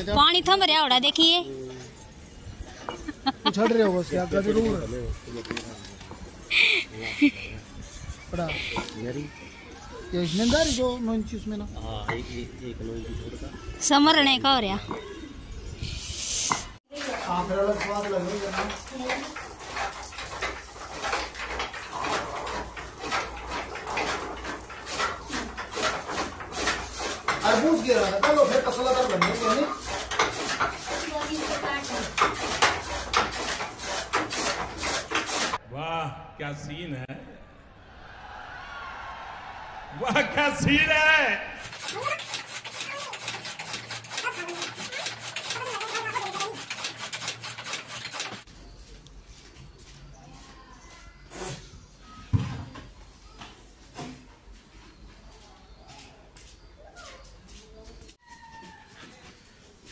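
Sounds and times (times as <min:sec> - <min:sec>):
chaff-cutter blades chopping fodder: 0:24.5 - 0:35.6, 0:41.6 - 0:48.5.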